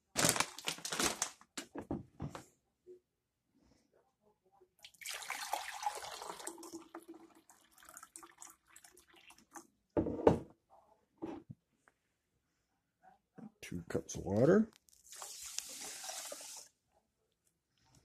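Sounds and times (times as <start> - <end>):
water pouring into glass cup: 4.8 - 9.6, 15.0 - 16.7
knock on counter: 10.0 - 10.5.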